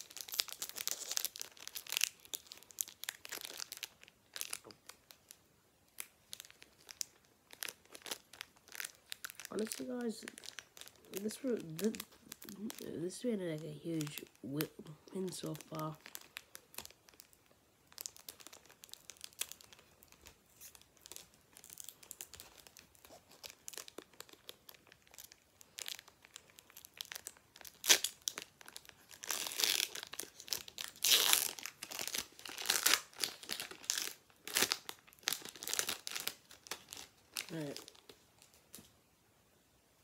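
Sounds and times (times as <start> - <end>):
foil wrapper crinkling and tearing: 0.0 - 38.9
cards rustling: 7.6 - 17.0.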